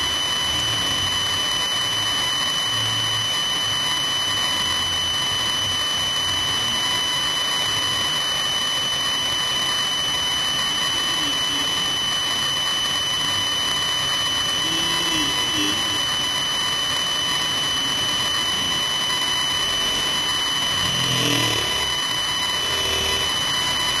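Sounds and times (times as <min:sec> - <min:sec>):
high-pitched whine: 0:00.0 - 0:24.0
constant hiss: 0:10.4 - 0:24.0.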